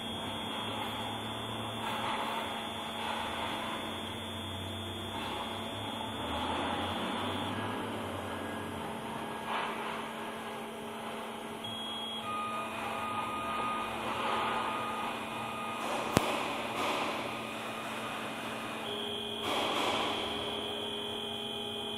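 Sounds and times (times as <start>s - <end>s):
foam cutting machine humming: 0.0s - 8.9s
whining drive motors: 0.0s - 21.9s.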